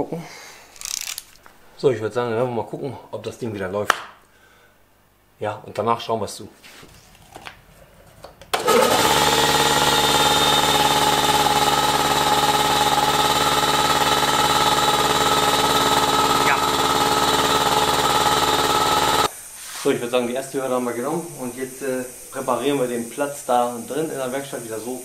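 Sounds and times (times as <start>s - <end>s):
air compressor running: 8.6s - 19.3s.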